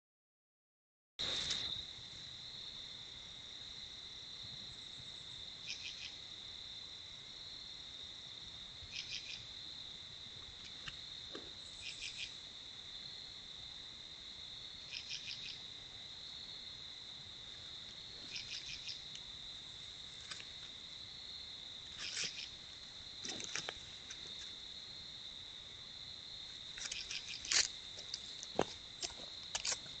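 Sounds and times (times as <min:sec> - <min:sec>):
cricket trill: 0:01.2 - 0:30.0
raspy insect pulses: 0:14.8 - 0:30.0.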